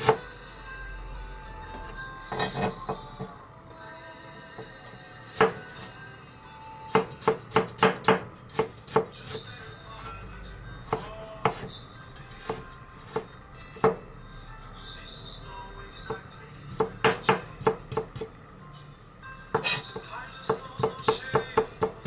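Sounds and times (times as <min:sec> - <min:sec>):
knife chopping on cutting board: 0:00.0 - 0:00.2, 0:02.3 - 0:02.7, 0:05.3 - 0:05.9, 0:06.9 - 0:09.4, 0:10.8 - 0:11.7, 0:12.4 - 0:14.0, 0:16.1 - 0:18.3, 0:19.5 - 0:22.0.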